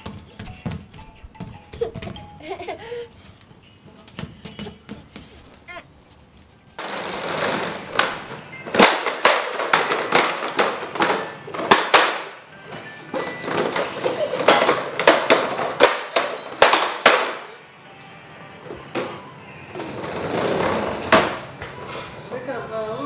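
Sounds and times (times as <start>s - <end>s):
toy truck wheels rattling on tiles: 6.8s - 12.2s, 13.2s - 17.5s.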